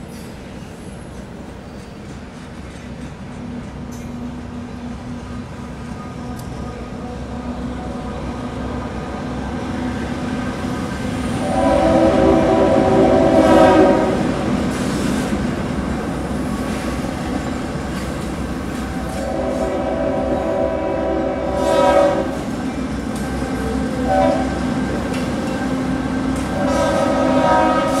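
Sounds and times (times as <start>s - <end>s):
train and car rumble: 0.0s - 28.0s
locomotive air horn blasts: 11.3s - 14.4s, 18.9s - 22.5s, 23.5s - 24.8s, 26.4s - 28.0s.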